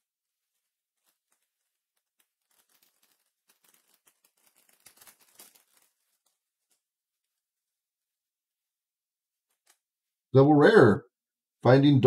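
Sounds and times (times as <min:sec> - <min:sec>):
foil pack tearing and crinkling: 0:01.0 - 0:06.4.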